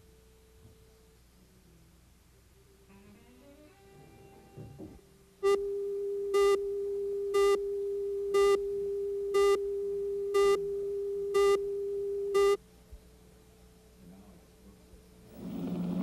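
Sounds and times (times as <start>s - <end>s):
buzzy countdown beeps: 5.4s - 12.6s.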